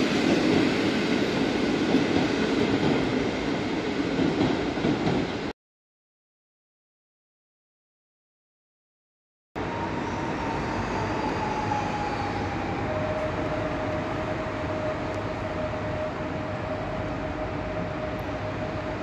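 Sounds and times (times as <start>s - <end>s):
electric train rumbling: 0.0s - 5.5s, 9.6s - 19.0s
train whine: 0.0s - 5.5s, 9.6s - 19.0s.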